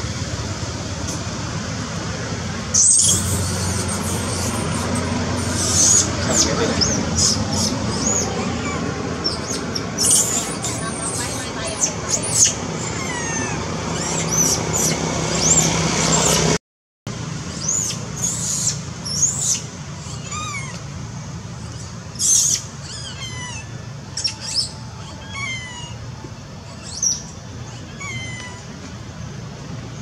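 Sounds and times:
falling chirps: 2.7 - 16.4
shrill animal squeals: 2.8 - 15.6, 17.7 - 20.8, 21.6 - 28.8.

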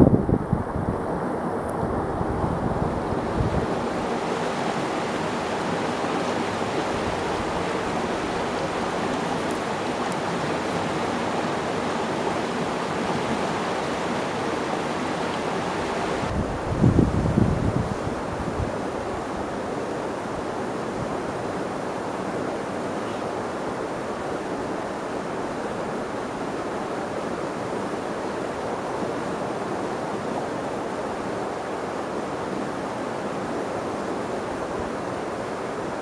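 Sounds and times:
wind rushing on microphone: 0.0 - 22.8.

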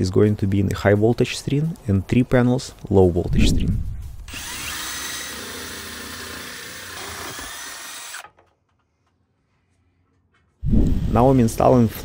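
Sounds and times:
cordless drill cutting with hole saw: 4.3 - 8.3.

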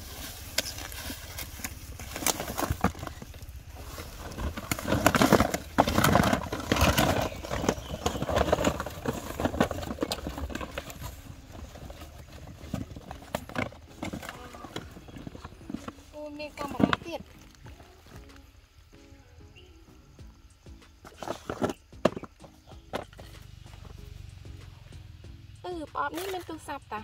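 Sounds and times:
cardboard boxes tumbling and knocking: 0.0 - 18.3, 21.0 - 23.8.

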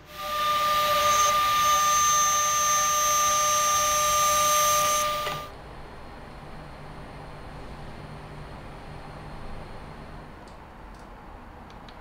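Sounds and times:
milling machine spindle whine: 0.0 - 5.6.

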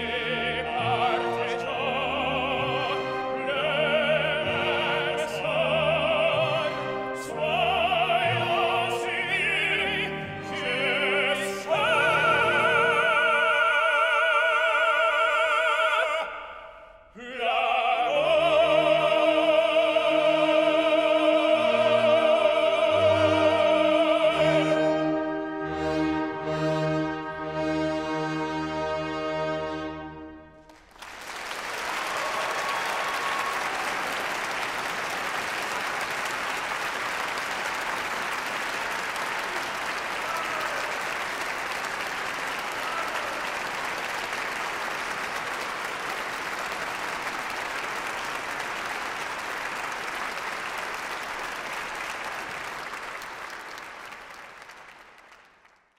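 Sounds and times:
orchestra chord with brass: 24.3 - 30.6
audience applause: 30.6 - 55.9.

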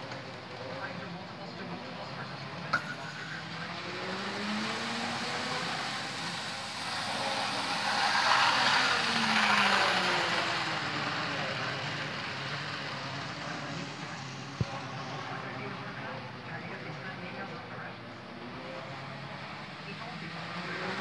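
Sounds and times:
model train motor whine: 3.4 - 15.1.

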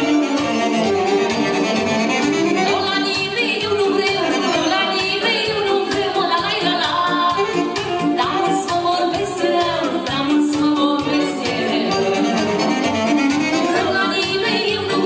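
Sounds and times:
accordion band with fast beat: 0.0 - 15.0
woman singing into a microphone: 2.6 - 12.7, 13.6 - 15.0.

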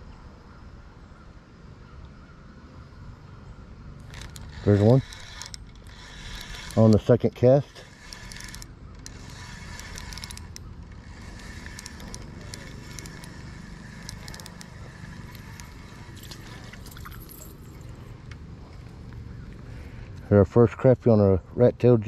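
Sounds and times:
fishing reel whirring and clicking: 4.0 - 17.9.

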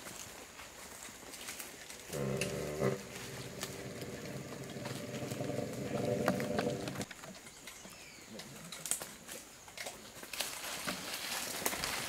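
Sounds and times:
rustles: 0.0 - 12.0
elephant groaning rumble: 2.1 - 7.1.

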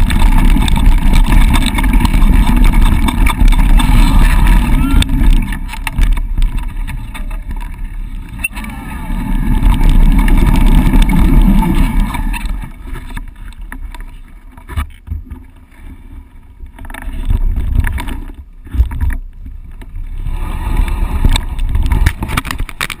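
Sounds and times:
bike knocks and rattles: 0.0 - 8.6
wind on microphone: 0.0 - 13.3, 16.7 - 23.0
bike tyres rolling on dirt: 0.0 - 23.0.

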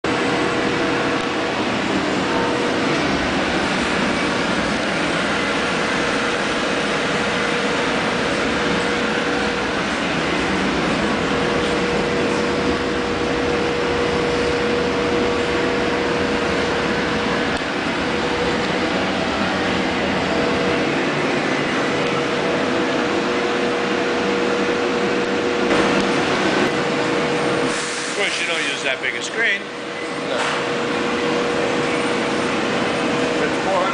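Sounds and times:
constant hum tone: 0.0 - 33.9
oven blower fans whirring: 0.0 - 33.9.

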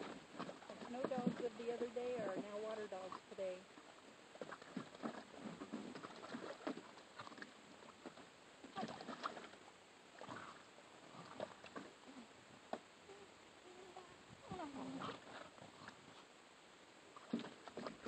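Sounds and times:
water splashing in a plastic pool: 0.0 - 18.0.

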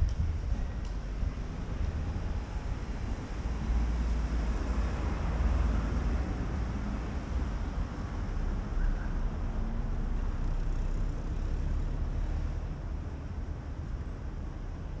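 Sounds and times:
wind rumble on microphone: 0.0 - 10.2
city traffic rumble: 0.0 - 15.0.

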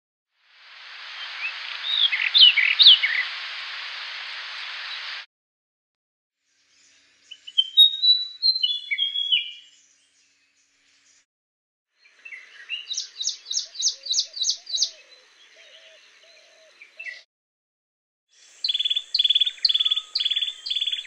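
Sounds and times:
bird singing rapid sharp notes: 12.3 - 15.0, 18.5 - 21.0.

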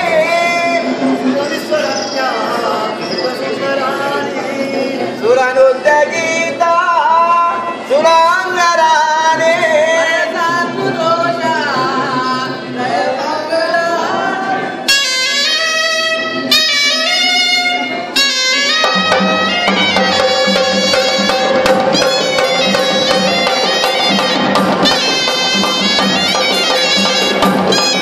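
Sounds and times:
reedy wind instrument melody: 13.9 - 28.0.

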